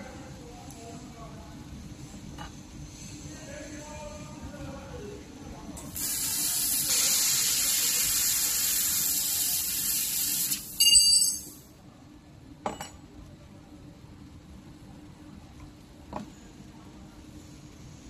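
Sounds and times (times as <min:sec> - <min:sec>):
laser cutter gas hissing: 0:05.9 - 0:10.8
burst with ringing tones: 0:10.7 - 0:11.6.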